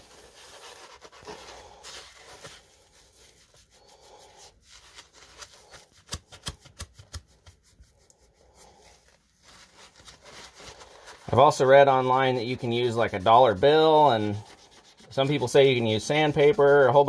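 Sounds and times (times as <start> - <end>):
scrub pad rubbing metal rod: 11.4 - 17.0.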